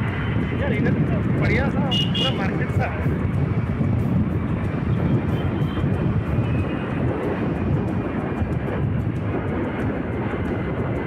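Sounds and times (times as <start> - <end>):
motorcycle engine: 0.0 - 11.0
wind buffeting microphone: 0.0 - 11.0.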